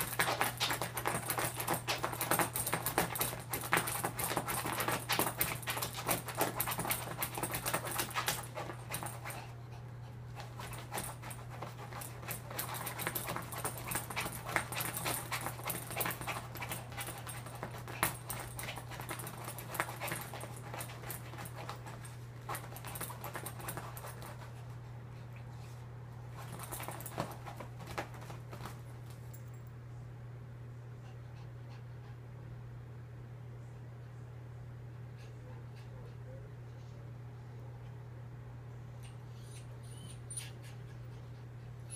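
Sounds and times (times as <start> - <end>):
dog scratching at fabric: 0.0 - 9.5, 10.4 - 24.5
dog panting: 0.0 - 28.1, 39.4 - 41.9
steady low hum: 0.0 - 41.9.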